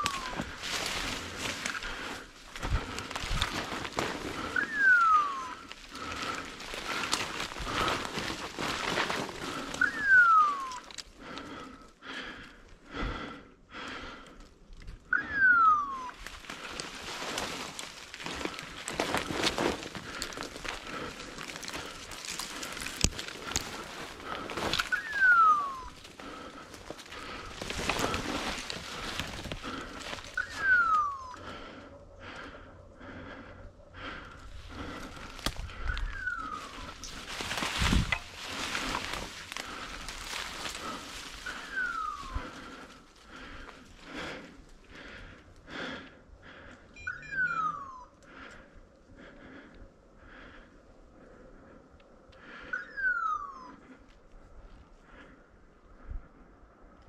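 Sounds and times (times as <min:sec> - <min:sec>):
footsteps through undergrowth: 0:00.0 - 0:11.4, 0:16.1 - 0:31.4, 0:34.4 - 0:44.1
rustling undergrowth: 0:00.0 - 0:13.4, 0:14.8 - 0:46.1
short beeps: 0:47.0 - 0:48.2.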